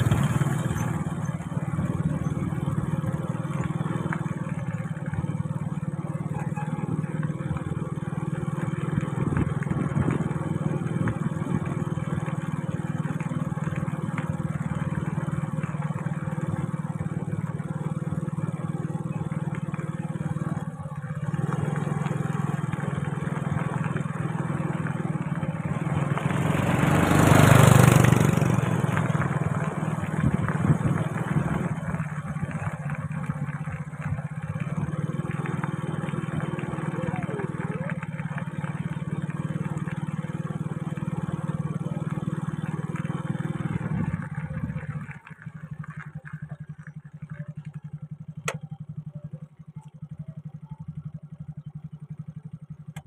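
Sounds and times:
motorbike engine running: 0.0s - 53.0s
road and wind noise: 0.0s - 53.0s.

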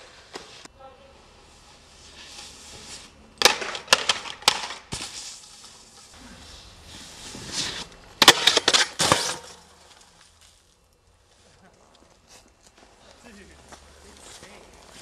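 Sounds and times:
snowboard scraping over snow: 5.2s - 8.0s.

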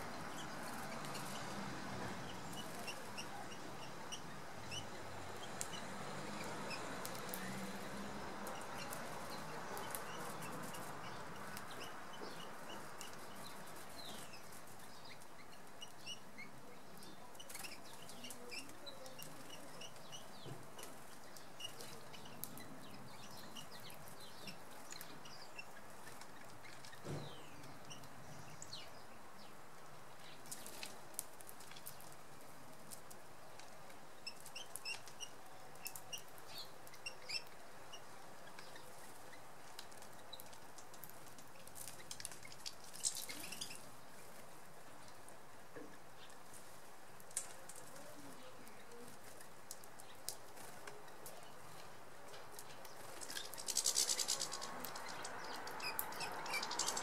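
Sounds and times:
small birds chirping: 0.0s - 57.0s
thump: 27.0s - 27.4s
sharp clicks: 53.2s - 57.0s.

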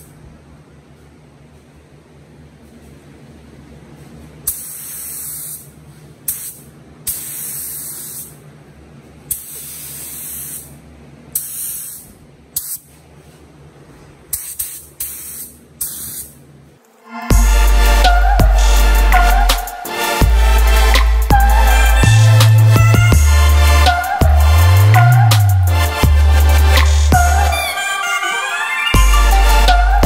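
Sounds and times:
paint spray gun hissing: 4.5s - 5.7s, 6.3s - 8.3s, 9.3s - 10.8s, 11.4s - 12.9s, 14.3s - 16.4s
low hum: 16.8s - 27.8s.

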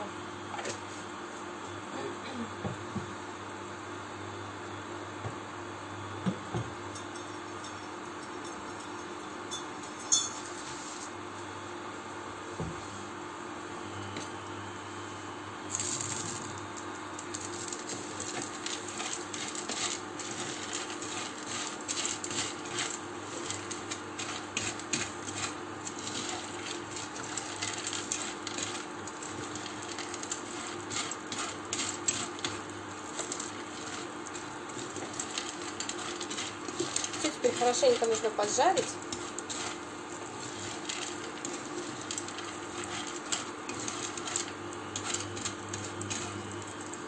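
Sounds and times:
dry pasta rattling in a pan: 15.7s - 47.0s.

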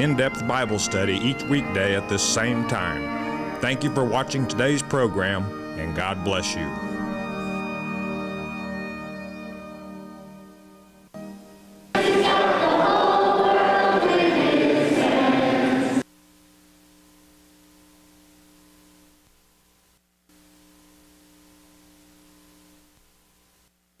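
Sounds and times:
faint steady hum: 6.6s - 24.0s
choir singing: 12.0s - 16.0s.

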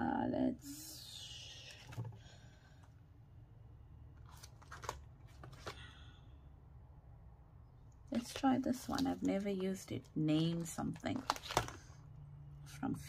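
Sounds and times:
plastic sheets crinkling: 4.2s - 5.8s, 8.1s - 12.0s.

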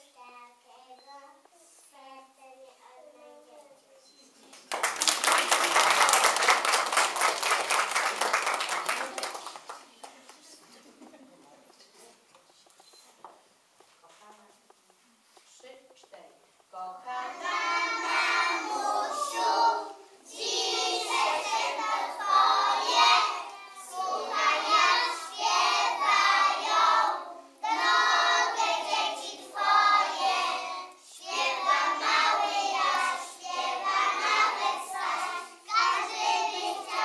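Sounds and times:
children singing in unison: 17.0s - 37.0s.

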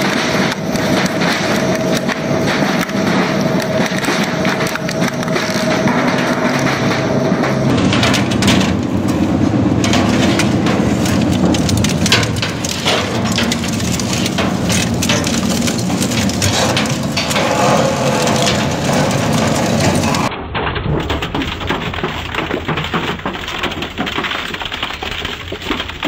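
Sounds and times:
metal shredder crushing sheet metal: 0.0s - 26.0s.

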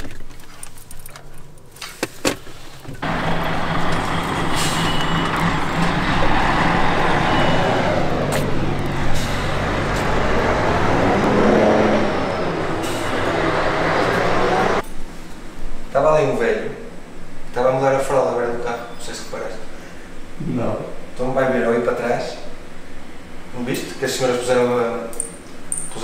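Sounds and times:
heavy vehicle engine humming: 3.0s - 14.8s
vehicle passing: 3.0s - 14.8s.

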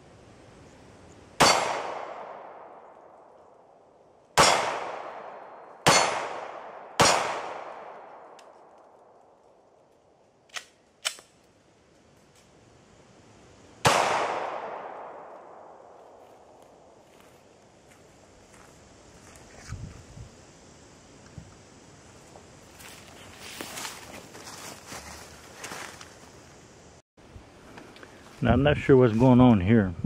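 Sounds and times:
pistol shots: 1.4s - 2.9s, 4.4s - 8.3s, 13.8s - 15.8s
faint gun clicks: 8.1s - 11.5s.

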